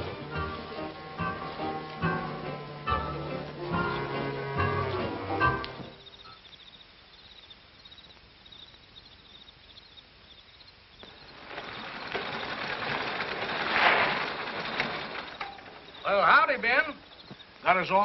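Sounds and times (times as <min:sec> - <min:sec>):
crickets chirping: 0:00.0 - 0:18.0
rushing noise: 0:11.1 - 0:16.2.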